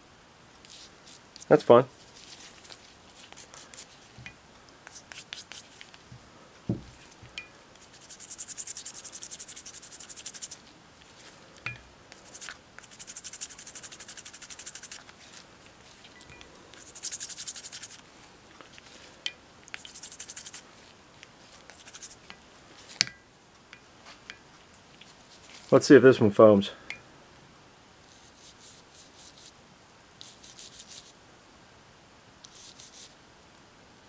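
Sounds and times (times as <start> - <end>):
toothbrush scrubbing wood: 2.2 - 4.0, 4.9 - 5.8, 7.8 - 10.6, 12.2 - 16.0, 16.8 - 18.0, 19.7 - 20.7, 21.6 - 22.2, 30.2 - 31.2, 32.5 - 33.1.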